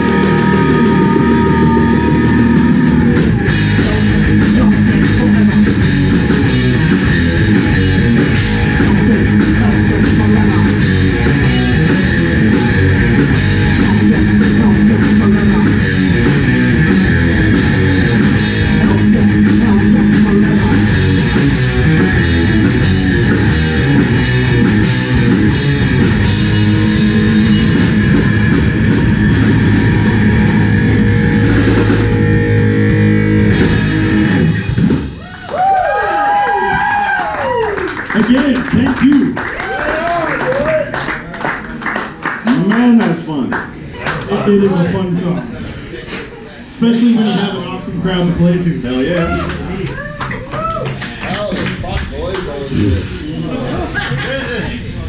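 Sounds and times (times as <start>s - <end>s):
heavy metal band playing: 0.0s - 37.2s, 51.2s - 55.0s.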